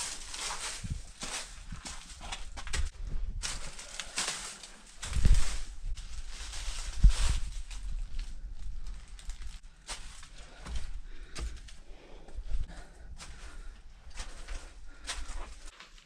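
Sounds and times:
footsteps crunching on dry leaves: 0:00.0 - 0:11.7.

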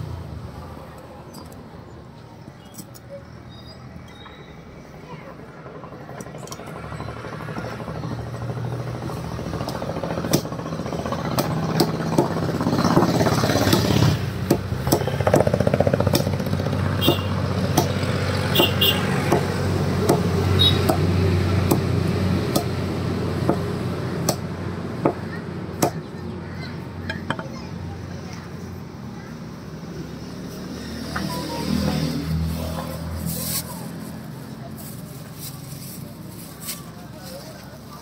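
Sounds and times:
cleaver chopping on wood: 0:13.0 - 0:16.4, 0:17.1 - 0:18.0, 0:22.5 - 0:22.8.

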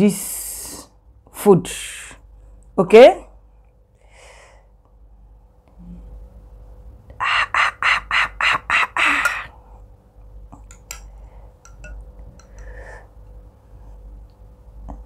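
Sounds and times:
spoon clinking glass bowl: 0:10.6 - 0:12.7.

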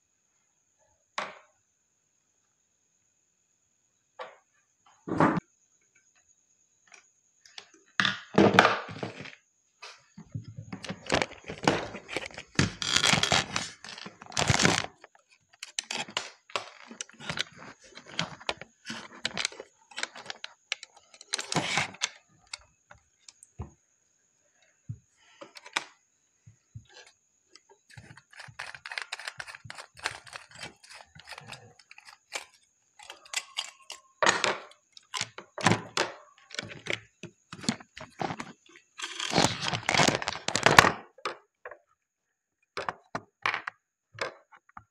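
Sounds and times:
wire and switches clicking and knocking: 0:10.2 - 0:23.6.

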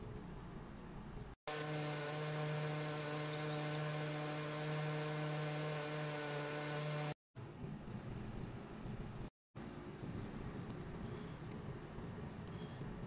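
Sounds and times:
machine hum: 0:01.5 - 0:07.2.

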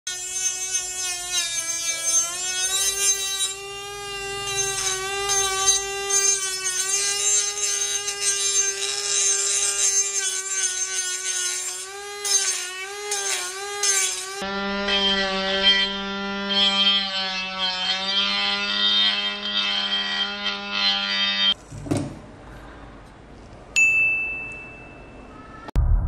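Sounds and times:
disc grinding steel: 0:00.1 - 0:14.4
mini grinder motor whine: 0:00.1 - 0:20.0.

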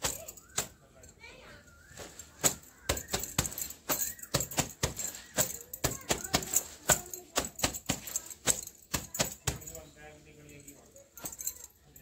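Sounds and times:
bangles jingling: 0:00.0 - 0:12.0
wet cloth scrubbing brick floor: 0:01.8 - 0:09.8.

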